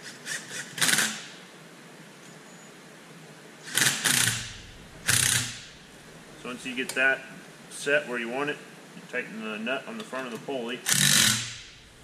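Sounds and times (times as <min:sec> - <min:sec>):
tool adjusting belt tensioner: 0:03.7 - 0:05.6, 0:10.9 - 0:11.7.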